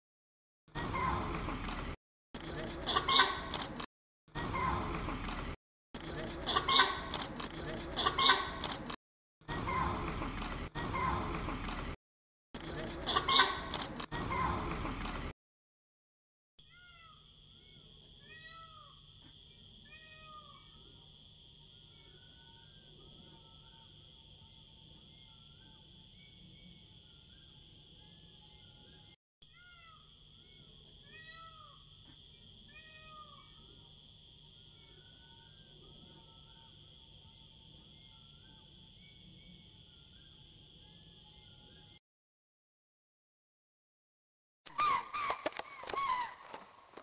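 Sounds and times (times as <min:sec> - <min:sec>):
rising and falling calls: 0:44.7 - 0:46.7.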